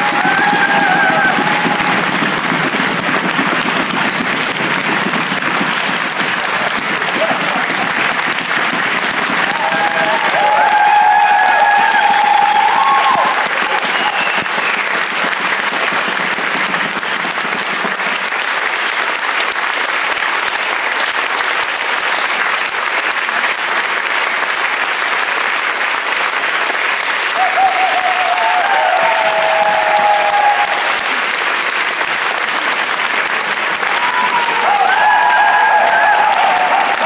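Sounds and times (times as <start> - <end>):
audience applauding: 0.0 - 37.0.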